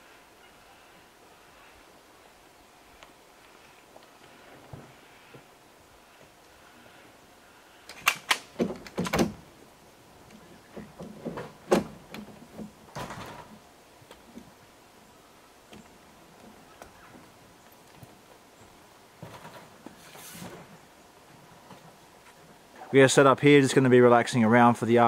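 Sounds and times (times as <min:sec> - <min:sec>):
rustling: 0:02.9 - 0:23.0.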